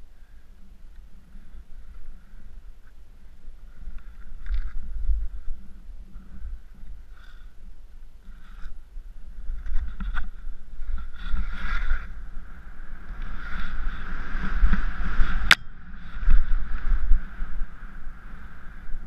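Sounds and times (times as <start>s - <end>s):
wind rumble on microphone: 0.0s - 19.0s
skis hissing through powder snow: 10.6s - 15.4s.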